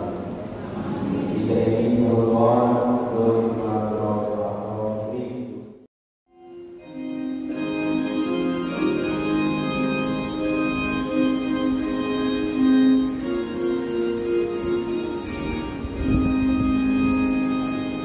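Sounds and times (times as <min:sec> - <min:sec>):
organ playing sustained chords: 0:00.0 - 0:05.6, 0:06.3 - 0:18.0.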